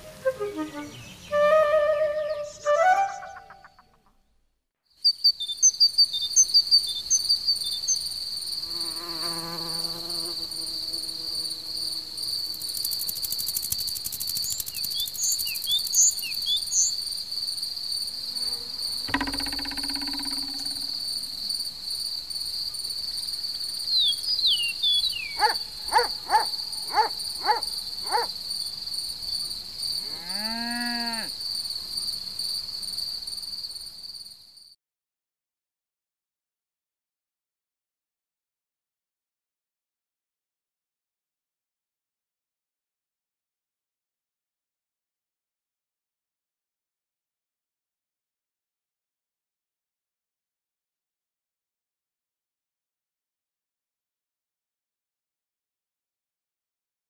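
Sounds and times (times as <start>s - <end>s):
high cricket trill: 5.0s - 34.4s
clicking rattle: 13.0s - 15.5s
quick chirps: 13.0s - 16.6s, 19.1s - 21.0s.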